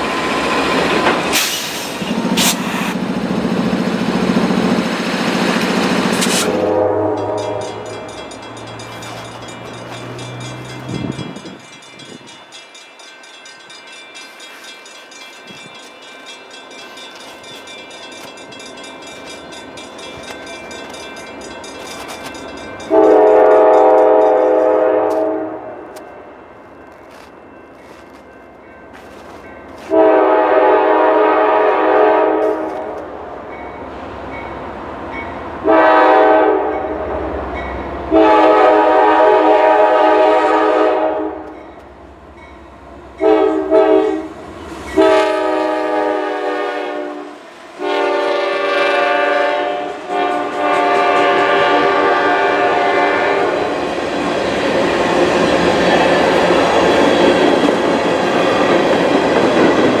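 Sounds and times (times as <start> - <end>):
locomotive air horn blasts: 6.2 - 8.0, 22.9 - 25.9, 29.8 - 33.0, 35.6 - 37.3, 38.1 - 41.5, 43.2 - 44.3, 45.0 - 53.7.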